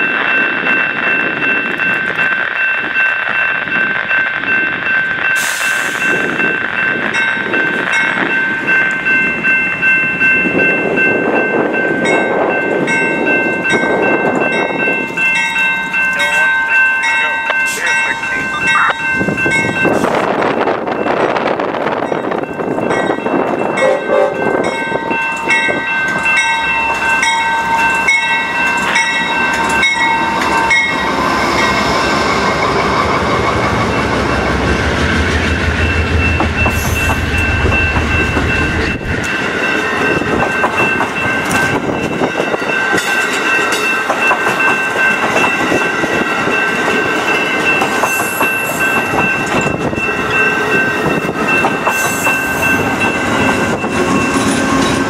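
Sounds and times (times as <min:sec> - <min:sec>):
locomotive bell ringing: 0:00.0 - 0:55.0
train wheel clatter: 0:00.0 - 0:55.0
locomotive engine rumbling: 0:12.7 - 0:55.0.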